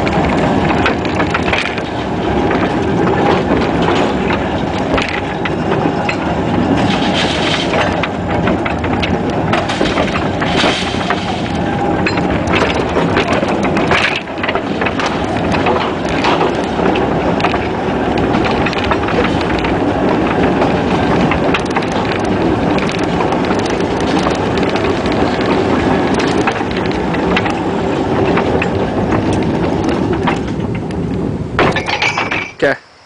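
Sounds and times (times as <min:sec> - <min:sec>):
metal clanks and clicks: 0:00.0 - 0:31.0, 0:31.6 - 0:32.6
mine car rattling along track: 0:00.0 - 0:32.8.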